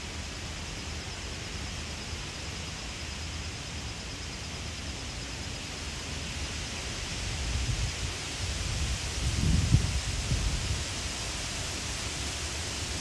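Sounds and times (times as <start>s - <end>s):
wind buffeting microphone: 8.6s - 10.8s.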